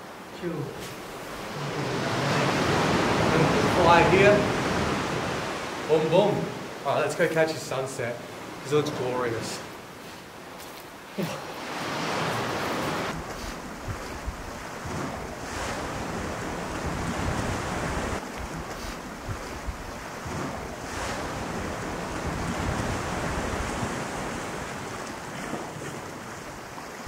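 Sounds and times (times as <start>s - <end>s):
surf washing on rocks: 0.0s - 27.0s
wind rumbling on microphone: 11.8s - 27.0s.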